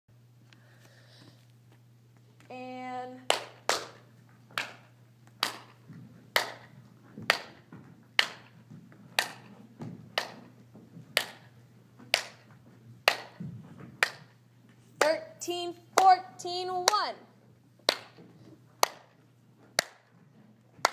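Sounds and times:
steady low hum: 0.1 - 20.9
hand claps: 3.3 - 4.0, 4.6 - 6.7, 7.3 - 7.6, 8.2 - 8.5, 9.2 - 9.5, 10.2 - 10.5, 11.2 - 11.5, 12.1 - 12.4, 13.0 - 13.4, 14.0 - 14.3, 17.8 - 18.2, 18.8 - 19.2, 19.8 - 20.2
person speaking: 15.0 - 17.3.

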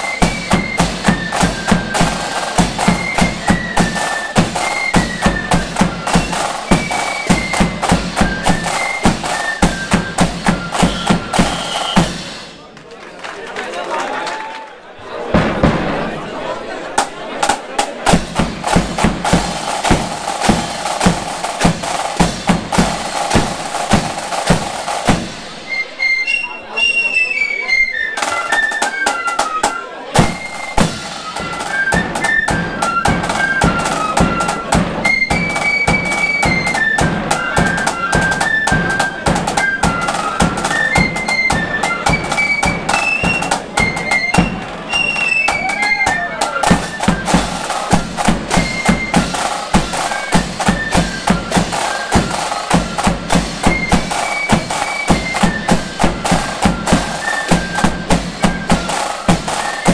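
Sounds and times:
flutes playing high melody: 0.0 - 12.5, 18.7 - 59.9
cymbals clashing: 0.0 - 12.6, 18.1 - 25.9, 30.2 - 31.7, 42.8 - 59.9
snare drums: 0.0 - 12.8, 15.1 - 27.2, 28.1 - 59.9
bass drum beat: 18.1 - 25.6.

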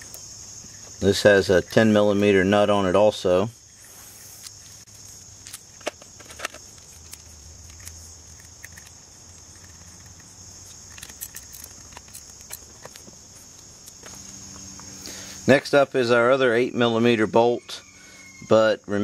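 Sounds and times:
high-pitched insect chorus: 0.0 - 19.0
tools clicking on metal: 5.4 - 13.0.

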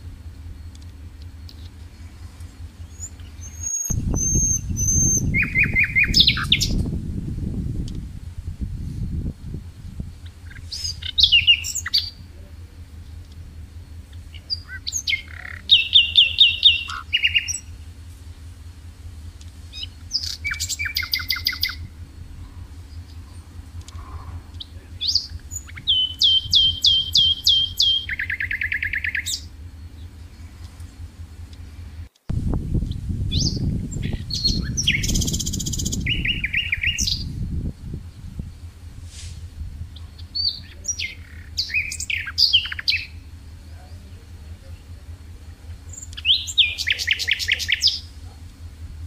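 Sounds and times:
songbird singing: 0.0 - 49.0
steady low hum: 0.0 - 49.0.

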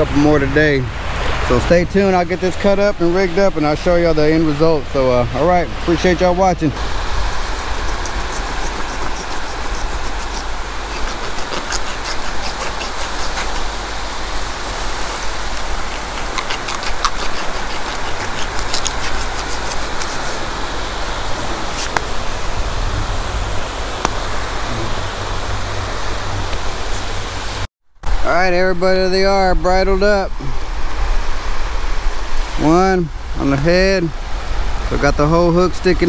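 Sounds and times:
beach surf: 0.0 - 36.0
knife cutting fish bones: 7.6 - 13.8, 15.6 - 20.5
wind buffeting microphone: 20.4 - 27.6.

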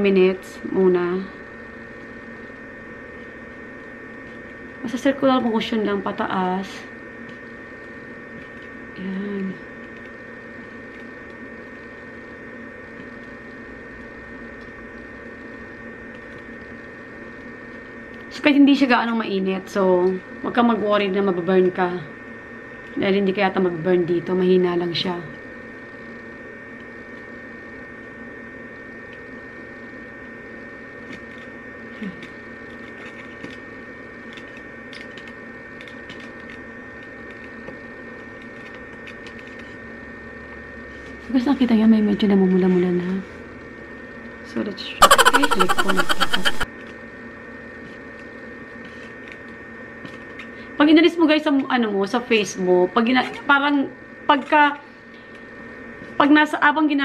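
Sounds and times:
electrical hum: 0.0 - 57.0
thin high whine: 45.0 - 46.7.

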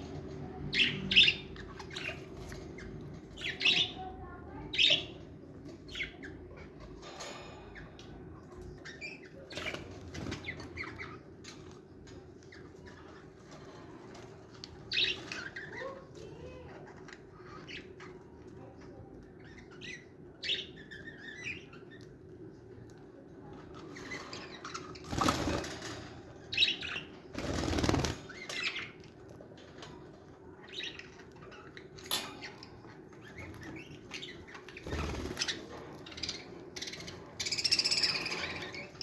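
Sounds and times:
wing flapping: 27.3 - 28.3.

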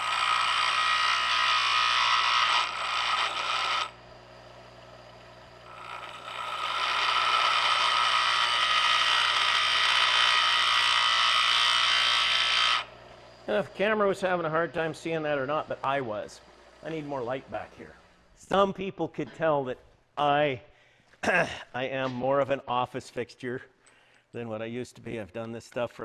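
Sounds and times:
bench grinder grinding steel: 0.0 - 17.4.

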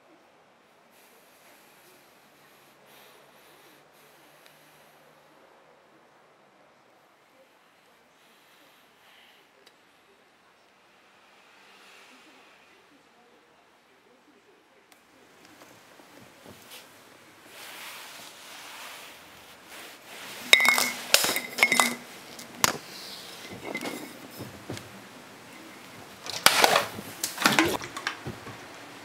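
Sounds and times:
faint hiss: 0.0 - 29.0
hard objects clinking and knocking: 20.4 - 28.6.

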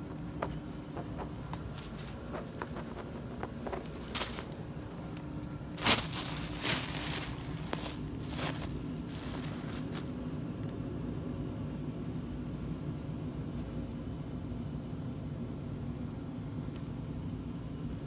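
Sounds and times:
low mechanical hum: 0.0 - 18.0
tissue paper crinkling: 1.0 - 10.4.

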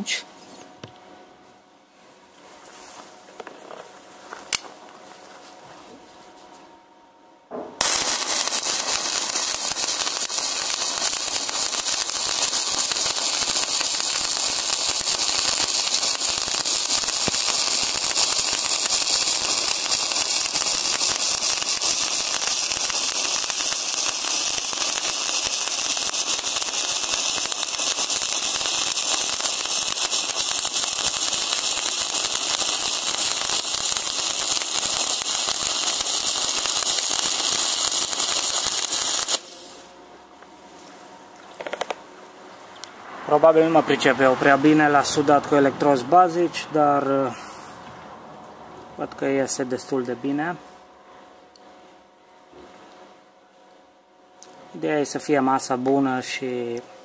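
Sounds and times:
welding arc crackling and hissing: 7.8 - 39.9.

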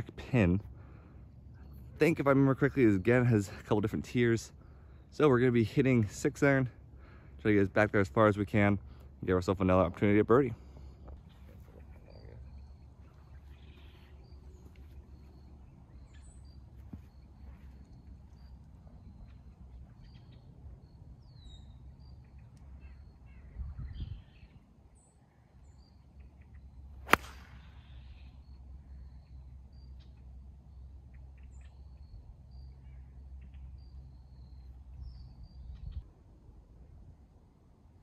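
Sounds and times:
faint bird chirps: 10.8 - 36.1
golf club striking ball: 27.0 - 27.7.

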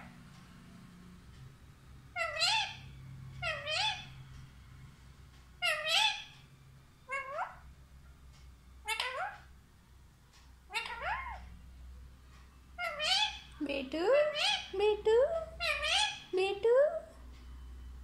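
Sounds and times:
parakeet calling: 2.0 - 4.3, 5.6 - 7.7, 8.8 - 9.6, 10.6 - 11.7, 12.5 - 16.6.

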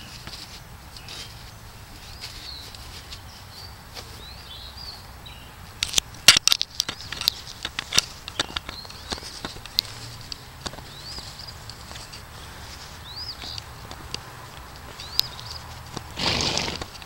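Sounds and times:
small birds chirping: 0.0 - 17.0
horse tearing grass: 16.0 - 17.0.

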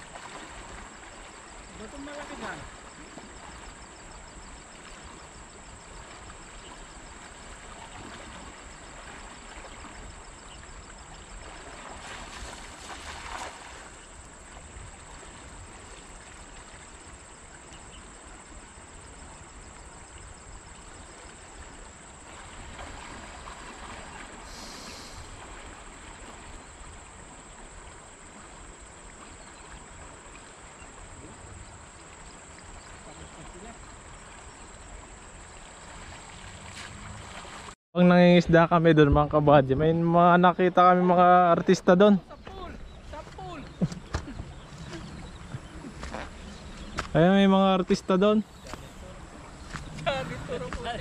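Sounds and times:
flowing river water: 0.0 - 37.8, 38.7 - 51.0.

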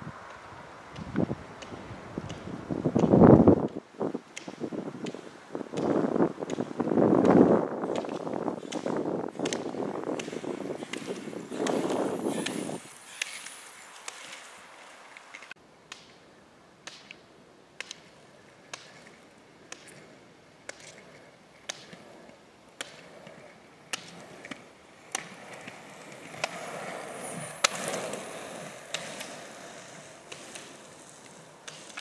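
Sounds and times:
roller-ski wheels humming: 0.0 - 15.5, 18.0 - 32.0
ski poles striking asphalt: 0.9 - 16.2, 16.8 - 17.2, 17.8 - 32.0.

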